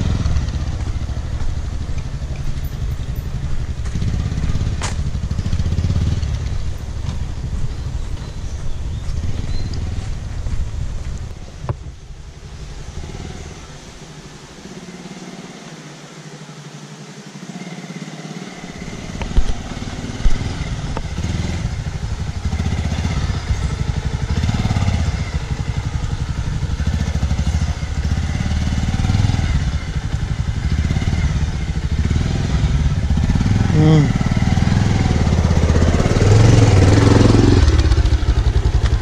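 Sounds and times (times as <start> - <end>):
motorcycle engine running slowly: 0.0 - 39.0.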